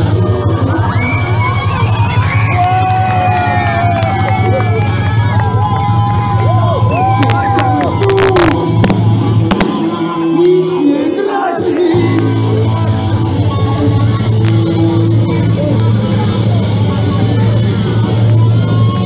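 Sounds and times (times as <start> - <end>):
live rock band: 0.0 - 19.0
held bass note: 11.9 - 19.0.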